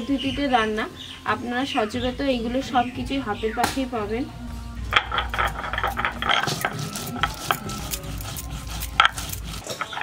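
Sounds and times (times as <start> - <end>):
stone roller grinding seeds: 4.9 - 10.0.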